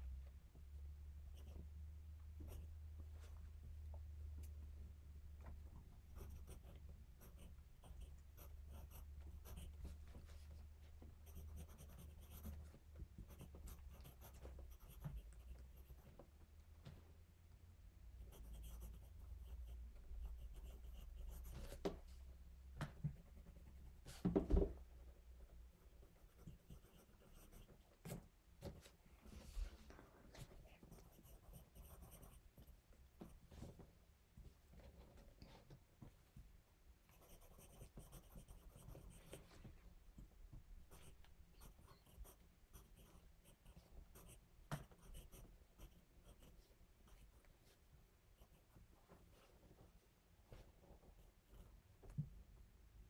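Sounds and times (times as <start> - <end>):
low steady hum: 0.0 - 53.0
pencil scratching on paper: 6.1 - 16.2, 18.2 - 22.0, 25.8 - 28.2, 30.4 - 32.7, 37.1 - 39.6, 40.9 - 47.3.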